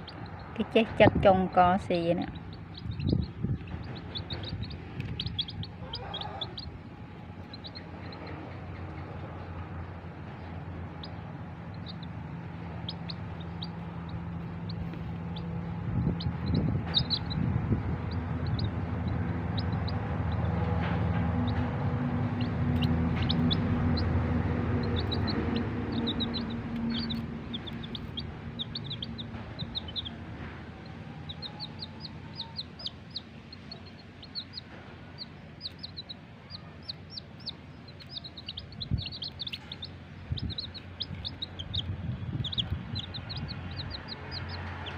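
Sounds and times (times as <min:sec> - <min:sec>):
chicks peeping: 0:00.0 - 0:44.9
low hum: 0:00.0 - 0:44.9.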